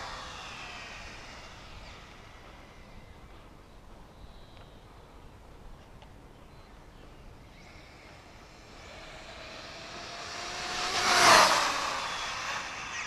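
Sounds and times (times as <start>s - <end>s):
rc car motor whine passing by: 0.0s - 4.8s, 7.4s - 13.0s.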